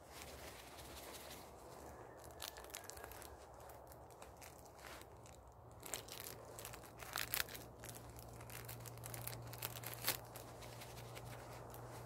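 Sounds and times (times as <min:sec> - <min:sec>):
wrapper crinkling and tearing: 0:00.0 - 0:12.0.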